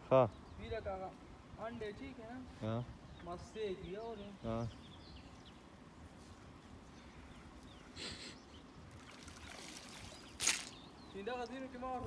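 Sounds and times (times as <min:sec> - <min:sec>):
low water noise: 0:00.0 - 0:12.0
water splashes: 0:08.9 - 0:12.0.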